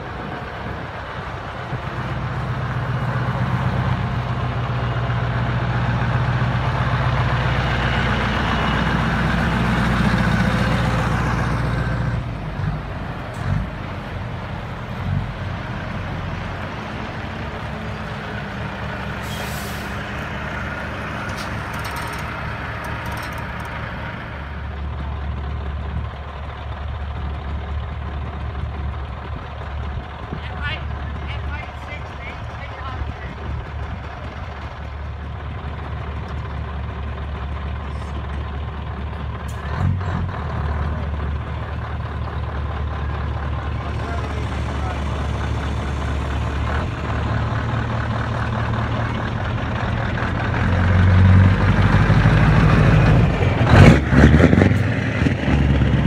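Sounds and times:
low truck engine drone: 0:00.0 - 0:56.0
truck engine passing: 0:00.0 - 0:56.0
air brake hiss: 0:19.2 - 0:20.0.

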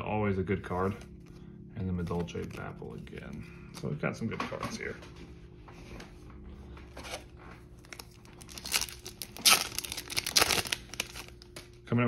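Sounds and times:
foil wrapper tearing and crinkling: 0:07.8 - 0:11.8.

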